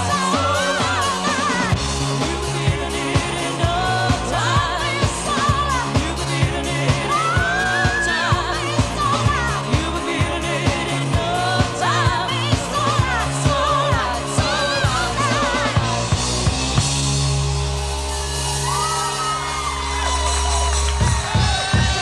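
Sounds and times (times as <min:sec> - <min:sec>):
person singing with vibrato: 0:00.0 - 0:16.1
live pop band playing: 0:00.0 - 0:22.0
drum beat: 0:20.6 - 0:22.0.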